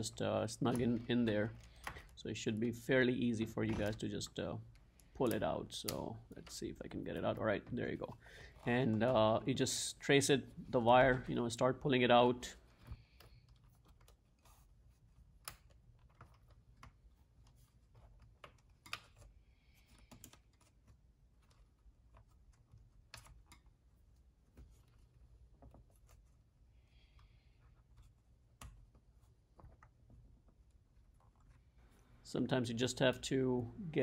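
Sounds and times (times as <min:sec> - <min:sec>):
small clicks and taps: 0:04.7 - 0:06.6.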